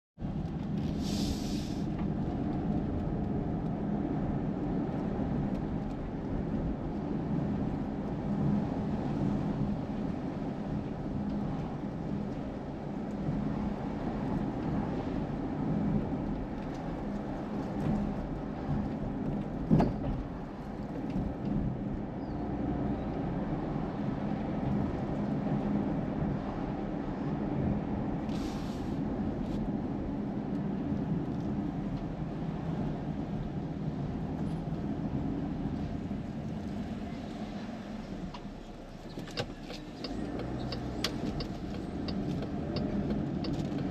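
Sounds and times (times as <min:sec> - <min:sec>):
road and engine rumble in car: 0:00.2 - 0:43.9.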